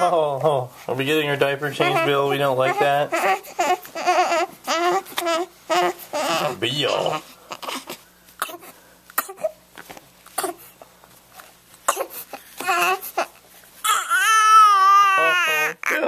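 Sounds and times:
baby wailing: 1.8s - 8.6s, 11.9s - 16.0s
baby whimpering and grunting: 1.8s - 9.6s, 11.9s - 16.0s.

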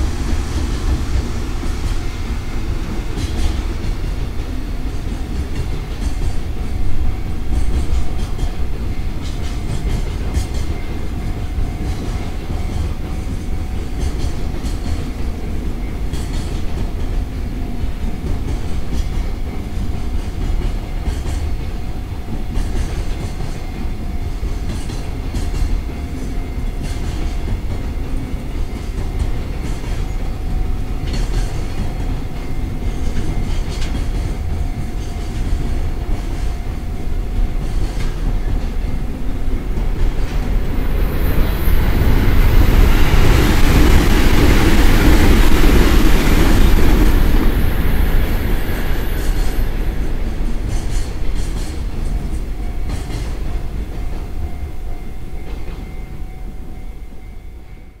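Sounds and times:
rushing hiss: 0.0s - 10.8s, 39.4s - 52.5s
freight train rumbling past: 0.0s - 58.0s
train wheel clacks: 0.0s - 58.0s.

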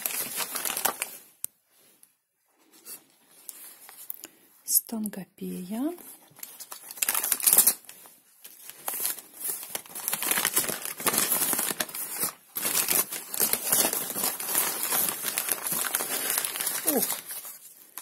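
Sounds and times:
paper wrapping rustling: 0.0s - 1.9s, 6.0s - 18.0s.

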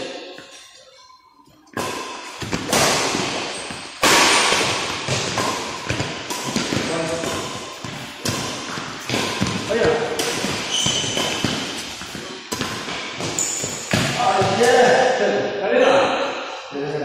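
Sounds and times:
rackets hitting shuttlecock: 1.7s - 15.0s.

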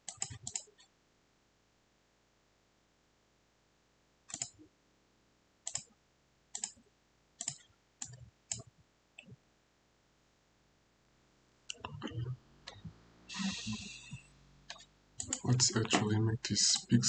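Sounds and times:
computer mouse clicking: 0.0s - 0.8s, 4.3s - 4.6s, 5.7s - 5.9s, 6.6s - 6.8s, 7.4s - 9.3s, 14.7s - 16.1s.

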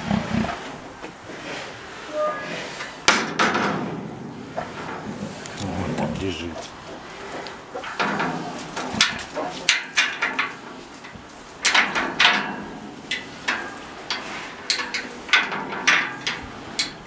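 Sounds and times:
metal mesh fence rattling: 11.6s - 17.0s.

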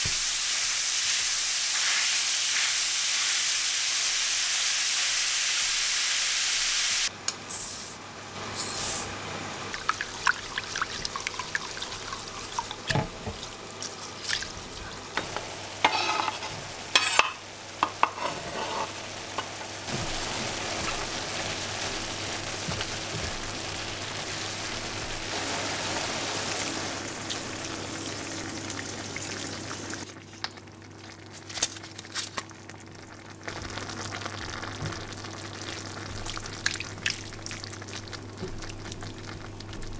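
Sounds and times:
meat sizzling in a pan: 0.0s - 7.1s, 15.2s - 30.1s
spatula scraping a pan: 15.8s - 17.3s, 18.0s - 19.0s.

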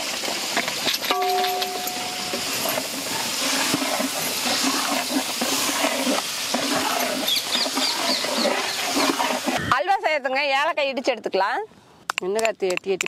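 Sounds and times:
food sizzling and bubbling in pan: 0.0s - 9.8s.

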